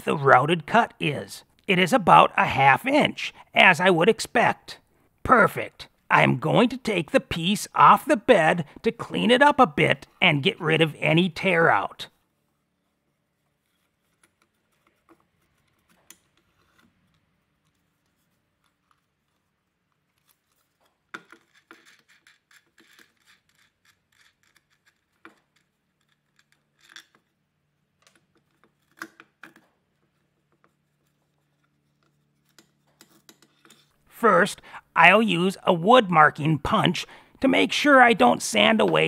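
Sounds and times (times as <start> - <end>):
faint metallic clicks and scrapes: 12.8 - 34.0.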